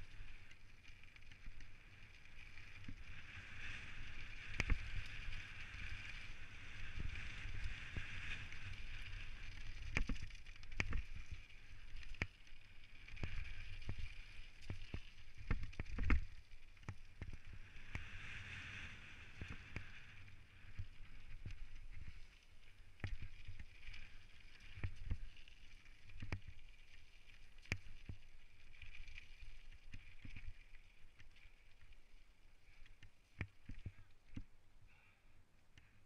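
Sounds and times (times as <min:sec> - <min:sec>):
bike tyres hissing on gravel: 0:00.0 - 0:34.1
wind rumble on microphone: 0:01.4 - 0:12.3.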